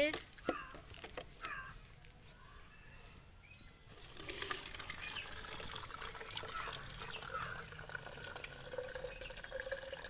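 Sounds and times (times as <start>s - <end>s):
water trickling through strainer: 3.9s - 10.0s.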